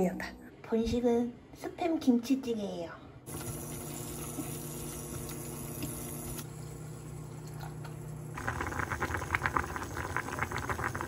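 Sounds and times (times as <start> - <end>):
stew bubbling at a boil: 7.3 - 11.0.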